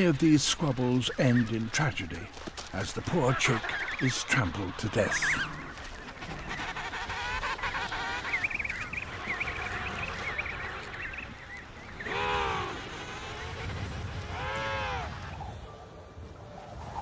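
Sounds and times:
penguins calling: 0.0s - 15.3s
low wind noise: 5.5s - 17.0s.

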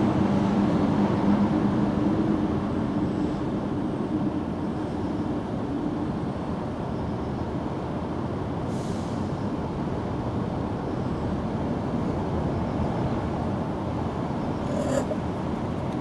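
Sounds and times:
cat purring: 14.6s - 15.3s.

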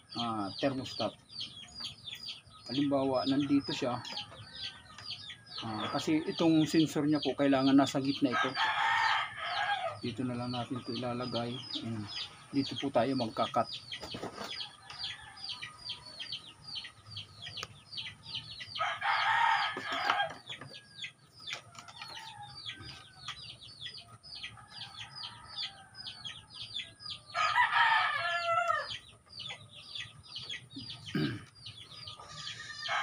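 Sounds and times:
chicks peeping: 0.0s - 33.0s
rooster crowing: 8.3s - 10.0s, 18.8s - 20.4s, 27.3s - 28.9s, 32.2s - 33.0s.

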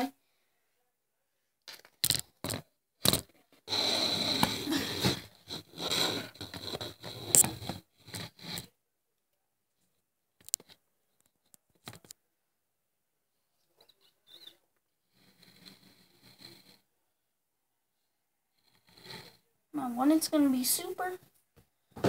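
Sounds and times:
scraping and rustling: 2.4s - 8.7s.

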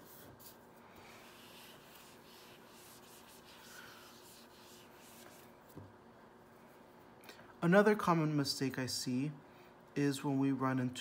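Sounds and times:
eraser rubbing on whiteboard: 0.0s - 5.5s.

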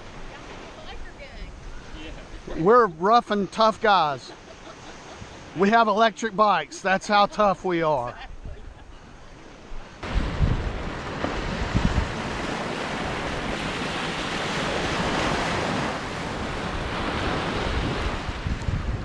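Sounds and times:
small waves breaking on beach: 0.0s - 19.0s
wind buffeting microphone: 8.1s - 19.0s.

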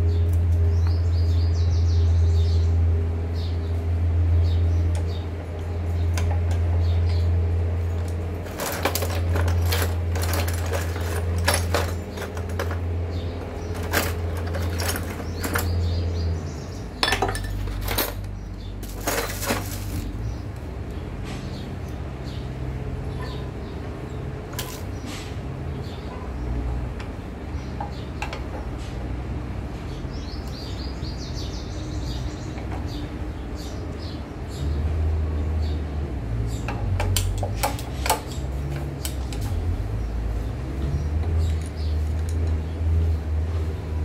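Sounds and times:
metal tools clinking in toolbox: 8.4s - 16.1s, 17.0s - 20.2s, 24.5s - 24.9s.

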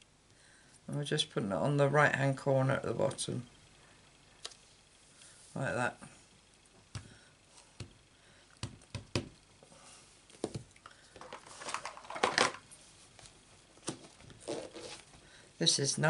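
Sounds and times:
rustling scrape: 11.3s - 13.3s, 14.0s - 15.1s.

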